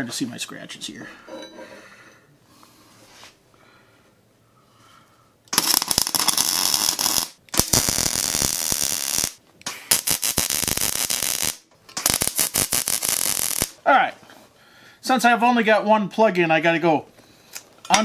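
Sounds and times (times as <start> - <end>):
welder arc crackling: 5.5 - 13.8.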